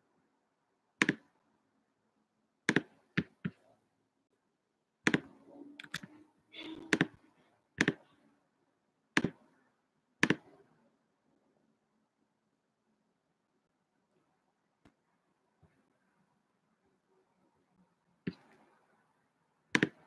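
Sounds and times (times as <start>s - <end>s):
computer mouse clicks: 1.0s - 1.2s, 5.1s - 6.2s, 7.8s - 8.0s, 10.2s - 10.5s.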